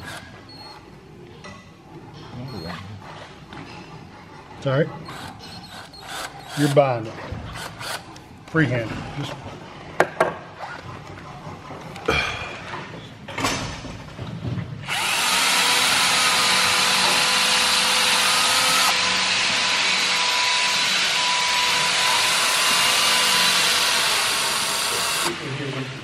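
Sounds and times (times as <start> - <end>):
cordless drill boring into wood: 0.0 - 0.3, 5.1 - 6.8, 7.5 - 8.1, 14.8 - 25.4.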